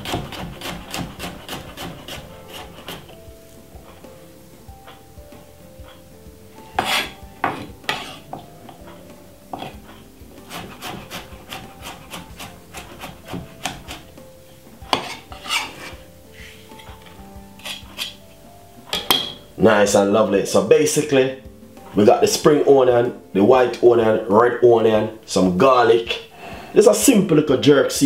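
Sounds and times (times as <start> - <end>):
knife chopping on wooden board: 0.0 - 3.2, 6.8 - 8.9, 9.5 - 14.1, 14.9 - 16.0.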